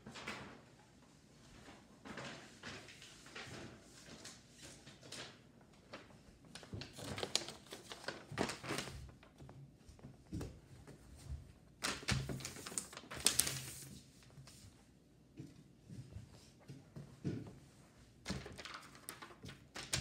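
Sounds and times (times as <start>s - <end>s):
paper crinkling and rustling: 2.0s - 10.1s, 10.8s - 14.6s, 18.3s - 20.0s.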